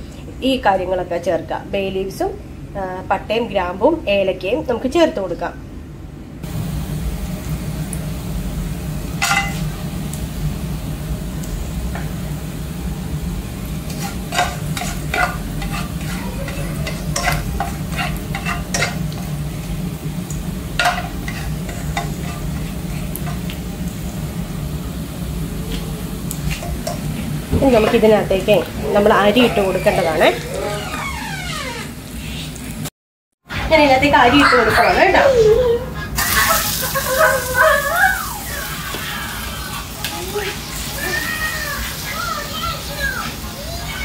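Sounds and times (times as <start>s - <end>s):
steady low hum: 0.0s - 29.6s
spices sizzling in hot oil: 6.4s - 30.7s, 36.2s - 44.0s
oil popping and crackling: 25.7s - 31.0s.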